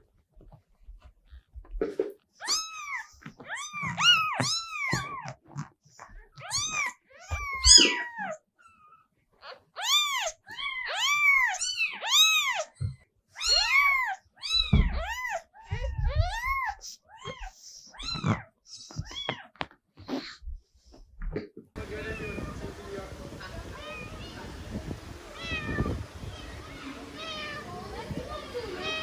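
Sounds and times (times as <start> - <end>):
kitten mewing: 2.4 - 8.8.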